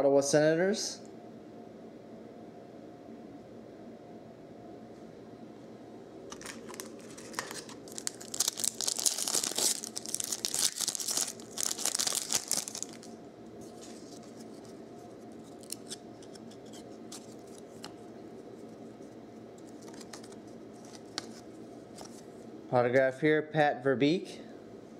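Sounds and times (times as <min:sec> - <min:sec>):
foil wrapper ripping and crinkling: 0:06.3 - 0:14.8, 0:15.4 - 0:17.9.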